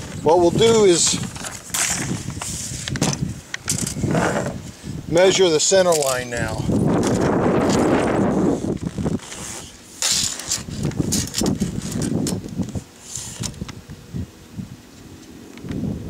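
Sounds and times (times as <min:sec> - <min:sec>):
scraping and rustling: 0:00.0 - 0:04.8, 0:05.9 - 0:13.7
tape measure being pulled out: 0:00.5 - 0:04.6, 0:05.8 - 0:06.3, 0:07.0 - 0:13.7.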